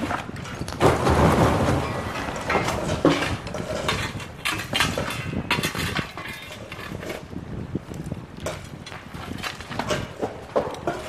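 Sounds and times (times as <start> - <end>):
tools knocking and scraping on rock: 2.0 - 7.4, 8.4 - 11.0.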